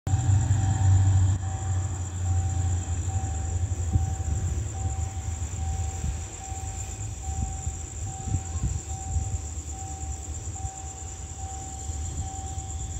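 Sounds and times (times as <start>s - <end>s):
insects trilling: 0.1s - 12.9s
low rumble: 0.1s - 12.9s
repeating electronic beep: 0.5s - 12.9s.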